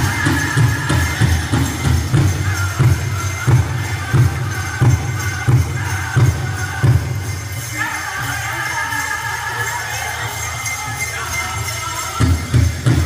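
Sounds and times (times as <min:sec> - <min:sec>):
high-pitched group singing: 0:00.0 - 0:13.0.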